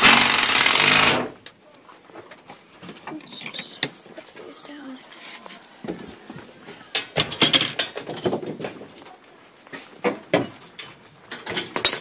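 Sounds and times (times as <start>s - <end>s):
hardware knocking and rattling: 2.3s - 4.3s, 5.8s - 9.1s, 9.7s - 12.0s.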